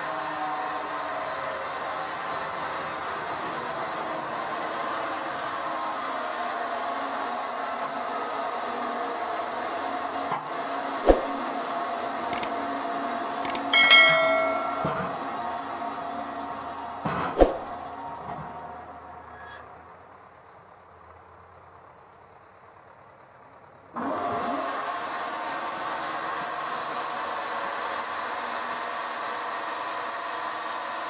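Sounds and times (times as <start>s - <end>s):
sharp knock: 11.1s - 11.4s, 13.8s - 15.2s
brief ringing tone: 13.5s - 15.3s.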